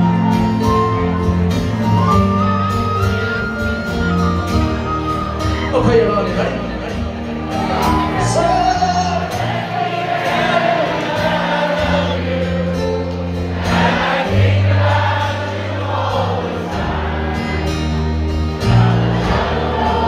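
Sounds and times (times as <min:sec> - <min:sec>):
acoustic guitars: 0:00.0 - 0:20.0
folk-rock band playing: 0:00.0 - 0:20.0
many voices singing together: 0:09.0 - 0:20.0.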